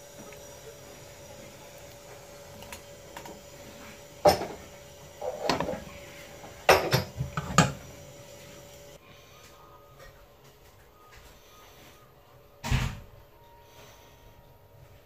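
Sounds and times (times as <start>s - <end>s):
metal skewers clanking on pan: 4.2s - 7.9s.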